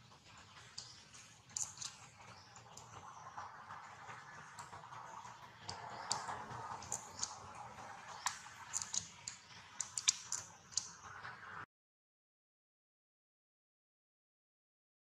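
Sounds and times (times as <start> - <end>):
faint steady background noise: 0.0 - 11.7
baby monkey suckling clicks: 1.6 - 2.0, 8.2 - 10.9.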